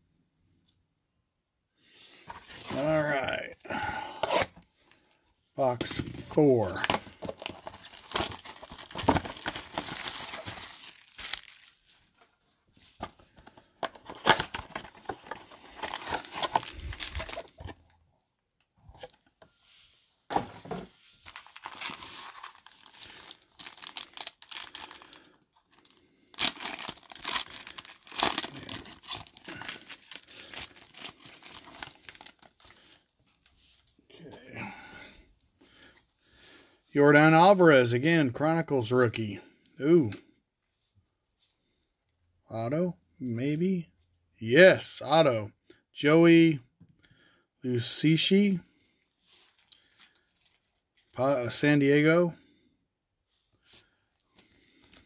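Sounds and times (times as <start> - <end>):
plastic wrap and foil crinkling: 6.6 - 12.5, 14.1 - 17.8, 21.2 - 33.9, 49.3 - 51.1.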